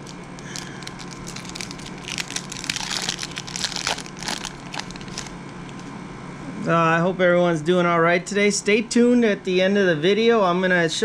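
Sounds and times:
foil wrapper crinkling: 0.0 - 5.9.

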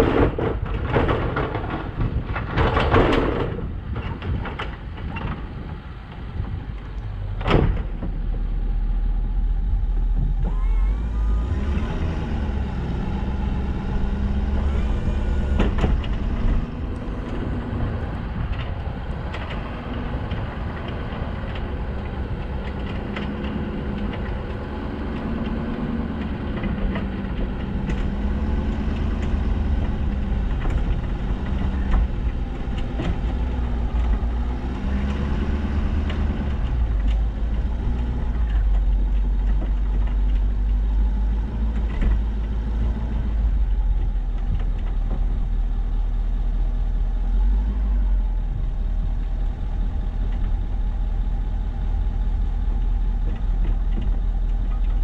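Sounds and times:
truck engine running: 5.6 - 55.0.

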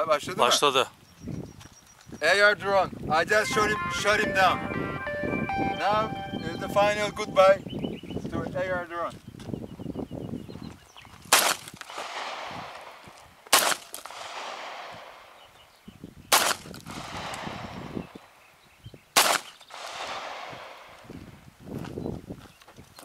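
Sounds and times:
gunshots echoing off hills: 11.9 - 15.5, 19.2 - 21.3.

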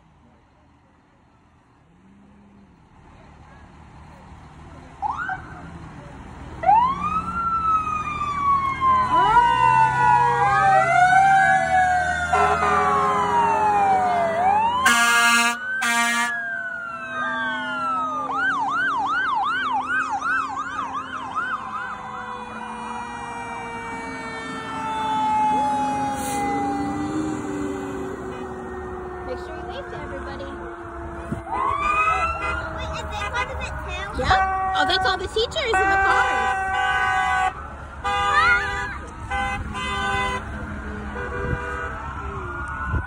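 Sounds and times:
truck engines running: 0.0 - 43.0
fire engine sirens wailing: 4.6 - 43.0
horn blasts: 12.3 - 13.3, 14.8 - 16.4, 26.1 - 42.2.

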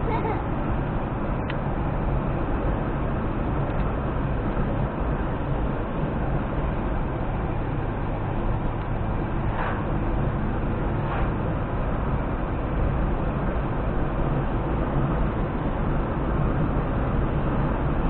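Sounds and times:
car road and engine noise: 0.0 - 18.0.

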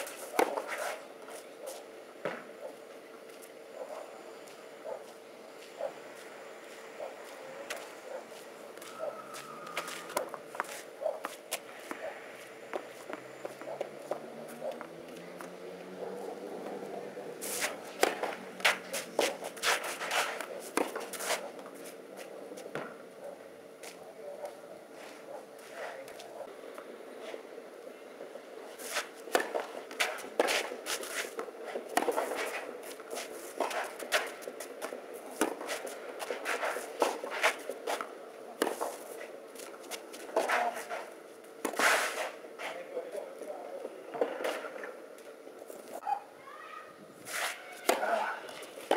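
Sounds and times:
shoes scuffing on clay: 4.4 - 15.3
tennis ball hits and bounces: 18.0 - 19.4, 20.1 - 21.4, 29.3 - 32.6, 47.3 - 48.9.

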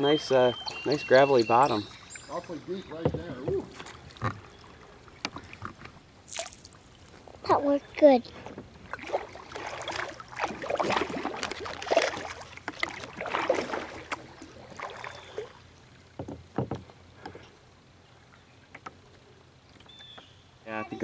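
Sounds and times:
paddle splashing in water: 0.0 - 7.4, 8.3 - 17.5
sharp knocks: 16.2 - 16.9.

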